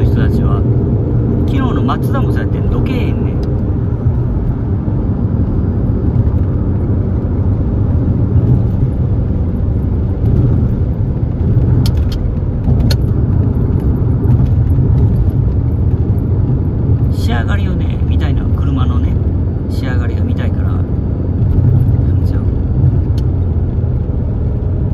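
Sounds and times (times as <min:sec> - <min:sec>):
car engine and road rumble: 0:00.0 - 0:24.9.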